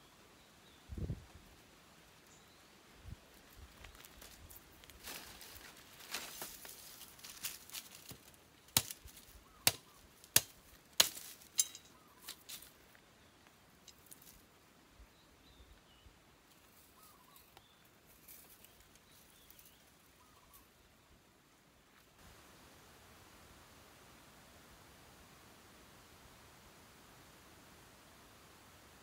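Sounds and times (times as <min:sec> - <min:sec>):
soft ticks and handling noises: 0:03.2 - 0:14.6, 0:16.4 - 0:20.7.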